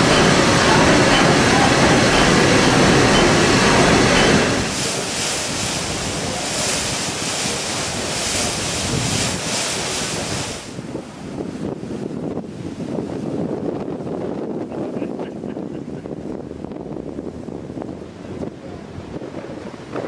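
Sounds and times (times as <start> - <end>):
marine steam engine running: 0.0 - 10.7
water churning along hull: 0.0 - 20.0
wind gusting on microphone: 0.0 - 20.0.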